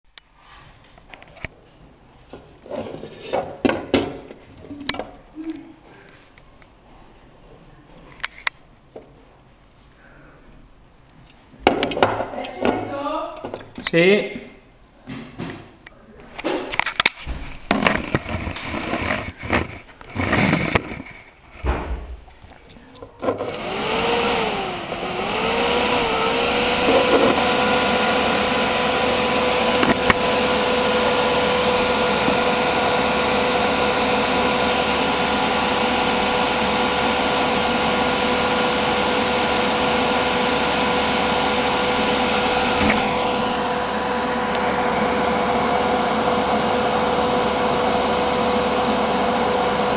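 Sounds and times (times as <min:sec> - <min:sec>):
fan whine: 0:22.7 - 0:49.9.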